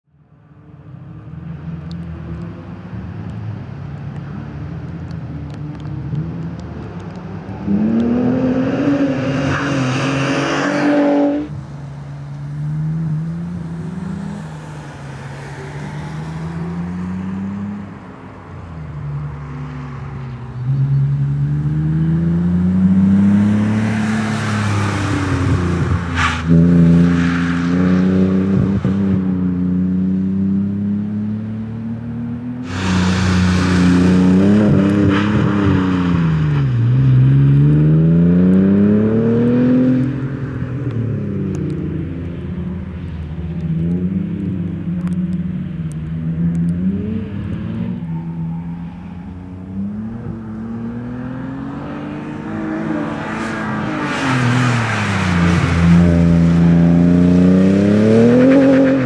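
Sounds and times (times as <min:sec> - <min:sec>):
race car engine revving: 0:20.8 - 0:40.4.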